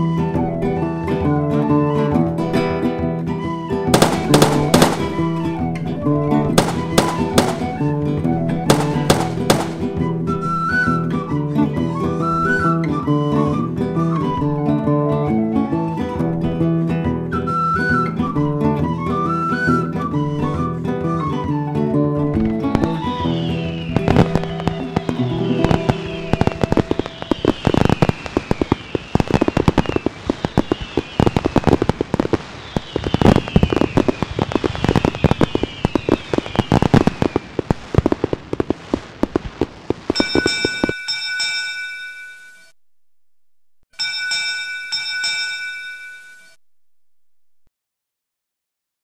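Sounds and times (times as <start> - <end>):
fireworks falling whistles: 3.4 - 14.5, 17.3 - 21.6, 22.3 - 41.0
fireworks bangs and crackling: 3.8 - 11.3, 22.4 - 41.0.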